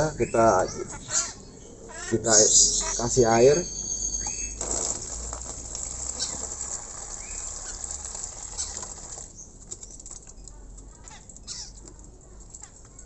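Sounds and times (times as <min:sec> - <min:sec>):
bird splashing and fluttering: 0:04.5 - 0:13.0
water splashing into bird bath: 0:04.5 - 0:13.0.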